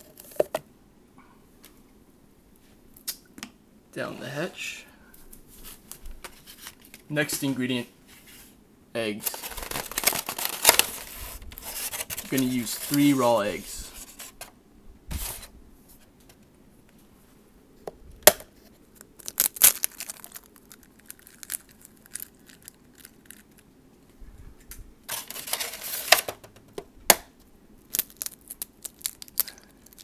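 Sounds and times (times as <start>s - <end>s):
rustling: 9.2s - 14.5s
eggs cracking: 19.0s - 23.7s, 27.9s - 30.0s.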